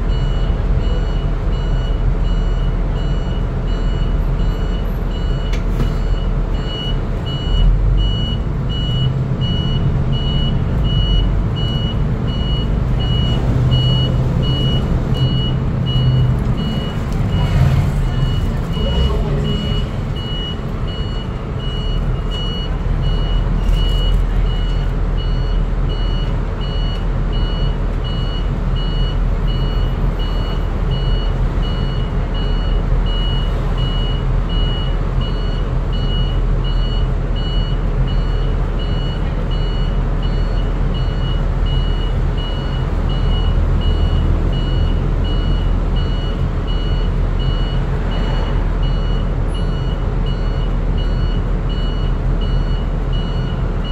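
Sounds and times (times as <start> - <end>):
bus engine rumbling: 0.0 - 53.9
high electronic beep: 0.1 - 35.5.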